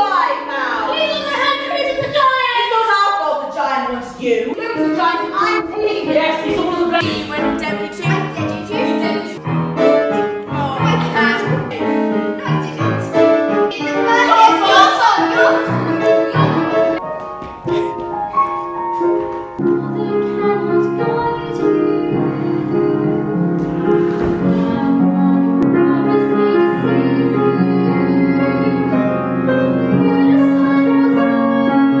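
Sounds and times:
piano accompaniment: 4.5 - 32.0
woman singing: 19.6 - 23.2.

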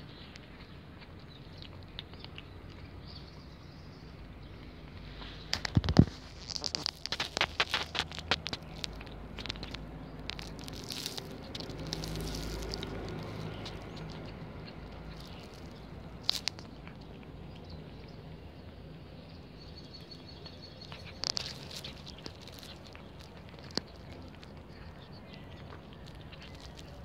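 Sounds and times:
cat chewing and licking: 0.0 - 27.0
sharp clicks: 5.4 - 17.3.

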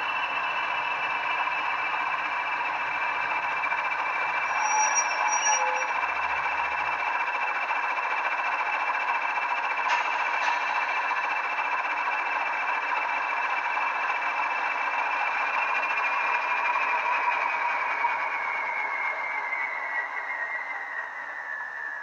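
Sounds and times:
model diesel engine idling sound: 0.0 - 20.2
steady high whistle: 4.4 - 6.0, 17.0 - 22.0.

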